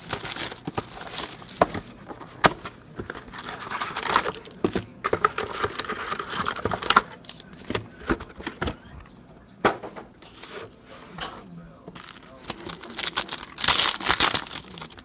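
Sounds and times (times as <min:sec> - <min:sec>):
shrink-wrap tearing: 0:00.0 - 0:01.8, 0:03.0 - 0:07.6, 0:12.0 - 0:15.0
foil packs crinkling: 0:00.0 - 0:08.2, 0:12.0 - 0:15.0.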